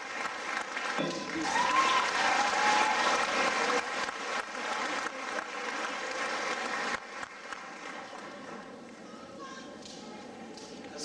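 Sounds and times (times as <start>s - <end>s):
audience applauding and cheering: 0.0s - 8.5s.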